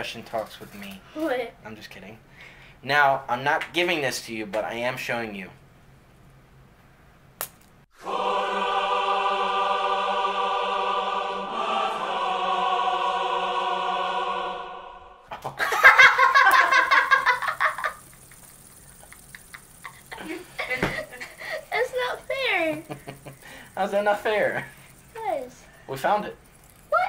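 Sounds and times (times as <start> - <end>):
choir singing aah chord: 8.0 - 15.3
excited laughter: 15.3 - 21.8, 22.5 - 23.6.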